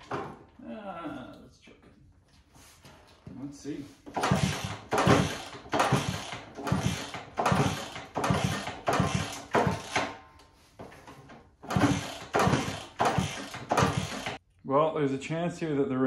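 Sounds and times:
motorcycle engine kick start: 4.1 - 10.2, 11.6 - 14.4.

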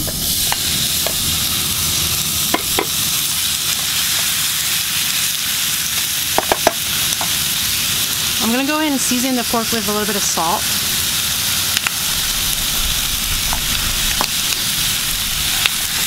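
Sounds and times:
meat sizzling in a dry pan: 0.0 - 16.0
wooden spatula knocking pan: 2.5 - 2.9, 6.4 - 7.3.

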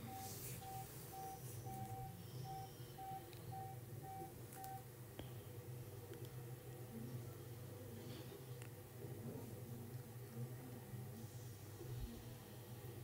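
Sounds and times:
faint electronic beeping: 0.0 - 4.9.

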